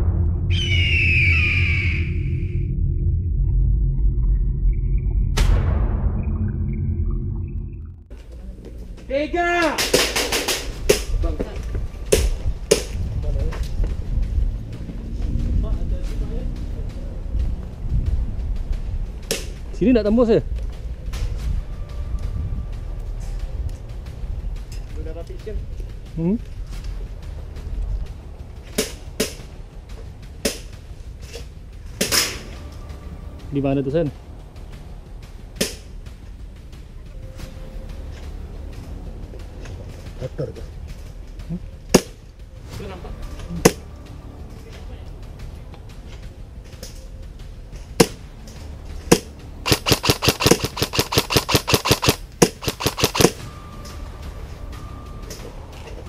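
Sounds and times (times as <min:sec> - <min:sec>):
airsoft gun shots: 0:49.1 - 0:53.4.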